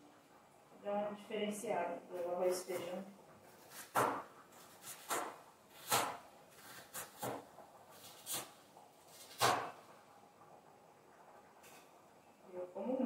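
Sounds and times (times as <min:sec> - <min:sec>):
knife striking cutting board: 0:03.6 - 0:08.5, 0:09.1 - 0:09.8.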